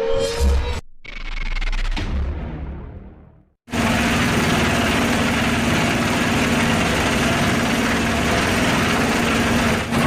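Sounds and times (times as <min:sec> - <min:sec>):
motorboat engine hum: 0:03.7 - 0:10.0.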